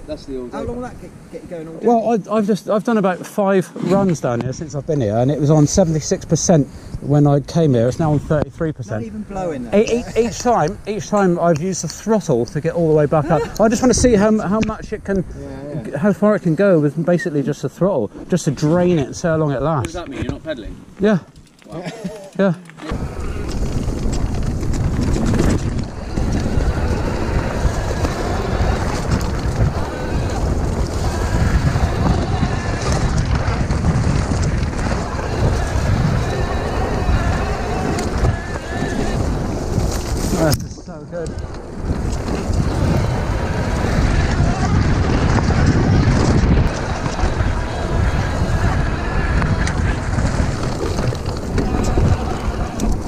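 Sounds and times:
tyres rumbling over dirt trail: 0:00.0 - 0:53.0
wind buffeting microphone: 0:03.8 - 0:21.4, 0:22.8 - 0:53.0
small clicks and rattles: 0:21.3 - 0:26.6
bike knocks and rattles: 0:23.2 - 0:40.5, 0:41.7 - 0:53.0.

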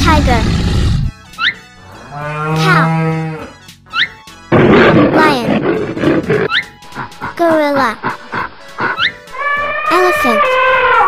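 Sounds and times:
cow mooing: 0:01.9 - 0:03.6, 0:09.3 - 0:11.0.

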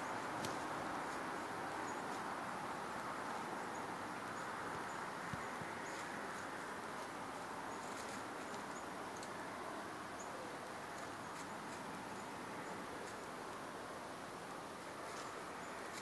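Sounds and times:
steady outdoor hiss: 0:00.0 - 0:16.0
deer stepping in dry leaves: 0:05.3 - 0:09.4, 0:14.9 - 0:16.0.

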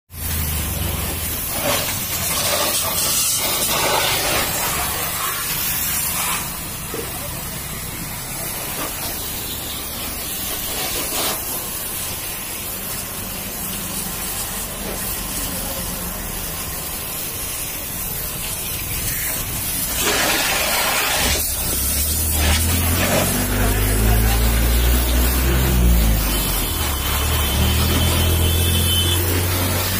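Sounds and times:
pressure washer spray hissing: 0:00.1 - 0:29.9.

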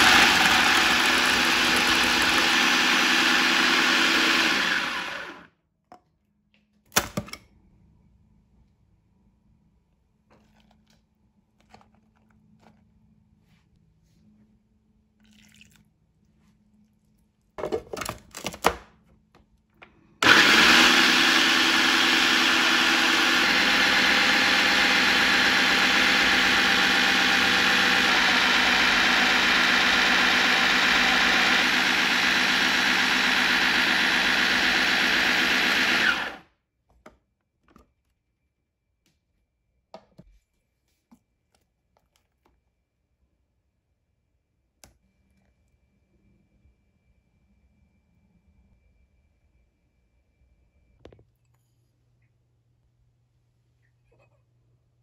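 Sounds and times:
food processor motor running: 0:00.0 - 0:05.5, 0:20.2 - 0:36.5.

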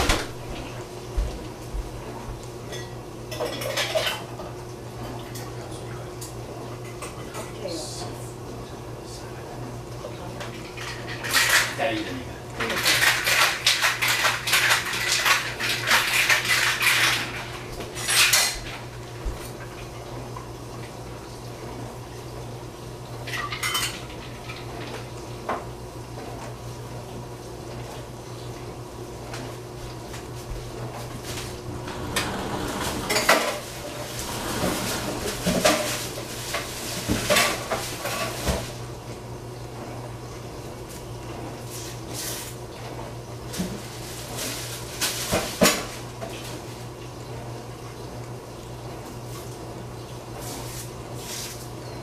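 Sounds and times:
steady low hum: 0:30.4 - 0:37.8
utensil scraping a pan: 0:31.4 - 0:37.6.

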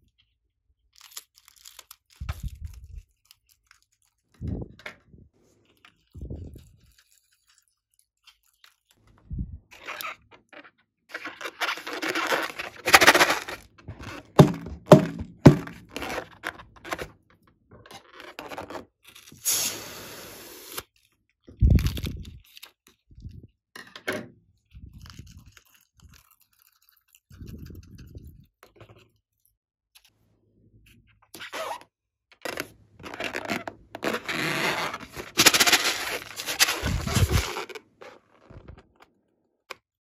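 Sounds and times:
soft squeezing sounds: 0:00.0 - 0:23.6, 0:24.6 - 0:30.2, 0:32.4 - 0:39.1
rubbery scraping of balloons: 0:09.7 - 0:17.2, 0:18.0 - 0:20.8, 0:31.4 - 0:38.9
sharp knocks: 0:13.9 - 0:15.9
hissy rush of air: 0:19.4 - 0:20.7.

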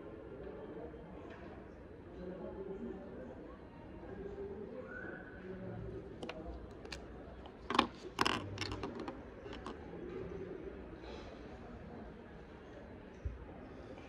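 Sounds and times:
plastic clicks and taps on desk: 0:06.2 - 0:09.8.

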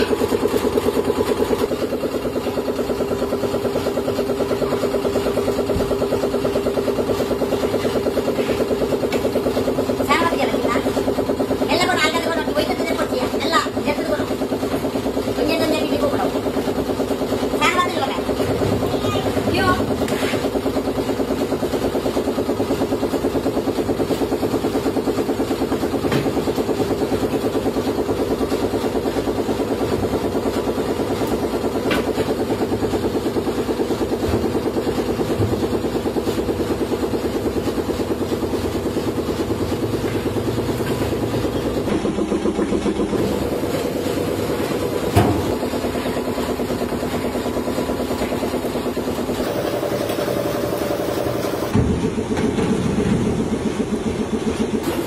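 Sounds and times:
machine motor droning: 0:36.0 - 0:55.0.

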